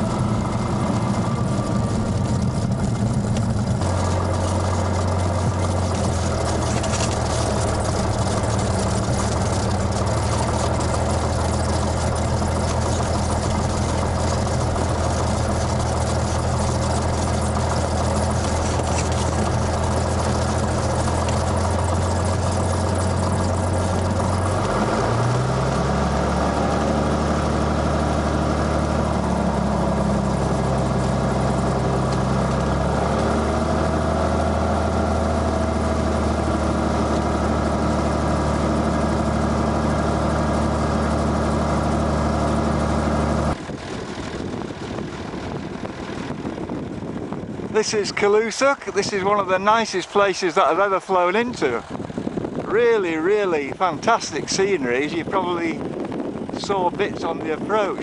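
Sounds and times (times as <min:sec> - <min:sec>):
airplane engine and propeller droning: 0:00.0 - 0:58.0.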